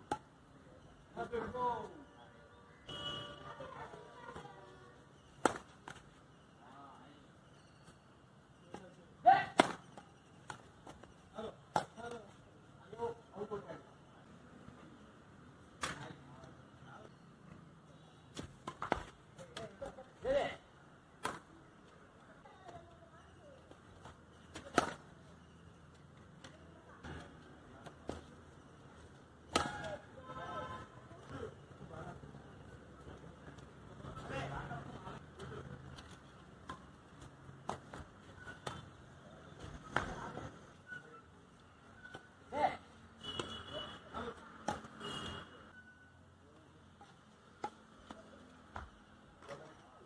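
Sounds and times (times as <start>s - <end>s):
rackets hitting shuttlecock: 5.4s - 6.0s, 9.4s - 11.0s, 21.2s - 21.5s, 24.5s - 25.0s, 29.5s - 30.0s, 44.6s - 45.0s.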